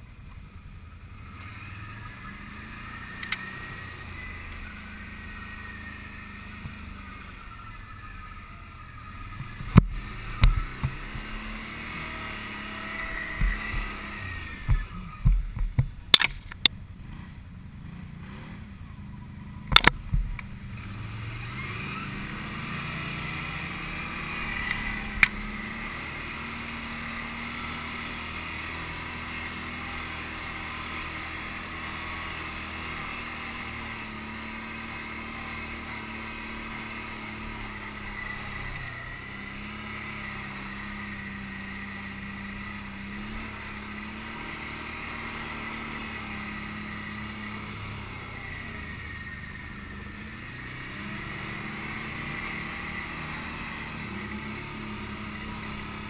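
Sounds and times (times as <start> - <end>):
atv engine running: 0.0 - 56.0
sharp knocks and thumps: 14.6 - 16.7.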